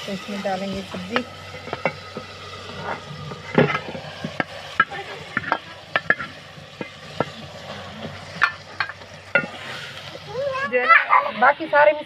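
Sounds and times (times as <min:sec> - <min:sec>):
beans sizzling in hot oil: 0:00.0 - 0:12.0
ladle knocking and scraping pot: 0:00.7 - 0:10.2.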